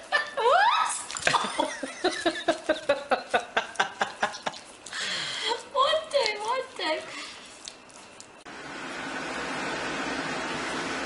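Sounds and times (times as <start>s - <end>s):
puppy lapping and slurping food: 1.1s - 8.5s.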